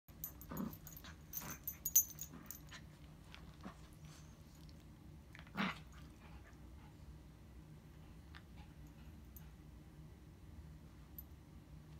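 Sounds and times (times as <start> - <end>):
collar tags jingling: 0.1 - 2.8.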